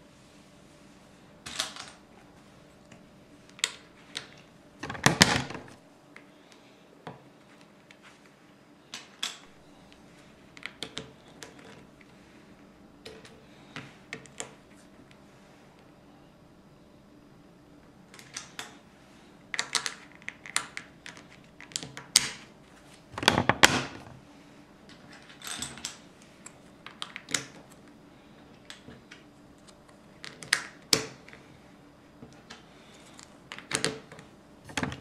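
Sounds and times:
clatter of plastic pieces: 24.9 - 26.0.

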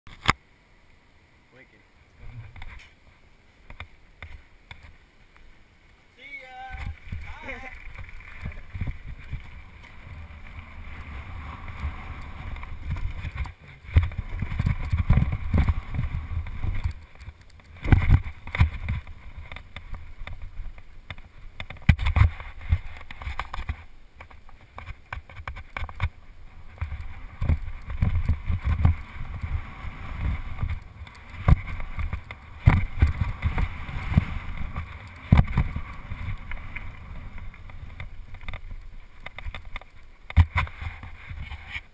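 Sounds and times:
wind on microphone: 6.4 - 41.9
bike tyres rumbling on gravel: 6.5 - 41.9
bike knocking over bumps: 30.1 - 41.1.

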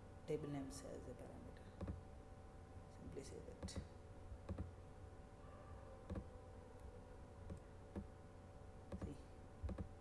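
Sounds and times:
faint electrical hum: 0.0 - 10.0
computer mouse clicks: 4.5 - 4.7, 6.1 - 6.3, 8.9 - 9.9.

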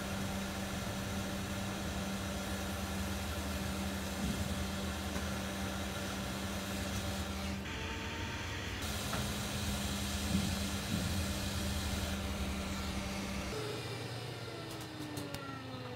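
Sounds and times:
fan hum: 0.0 - 15.9
hot air blowing through nozzle: 8.8 - 13.6.

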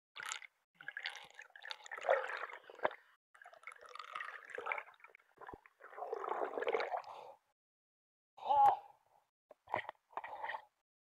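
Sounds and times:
underwater bubbling and gurgling: 0.2 - 7.3.

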